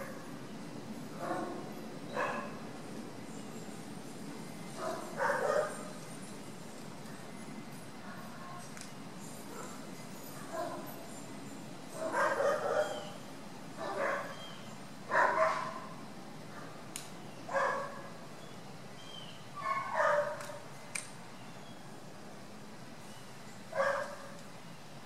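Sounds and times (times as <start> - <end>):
dog barking: 1.2 - 1.6, 2.2 - 2.5, 4.8 - 5.8, 12.0 - 13.1, 13.8 - 14.4, 15.1 - 15.9, 17.5 - 18.1, 19.6 - 20.4, 23.7 - 24.3
faint sharp clicks: 16.9 - 17.2, 20.4 - 21.2.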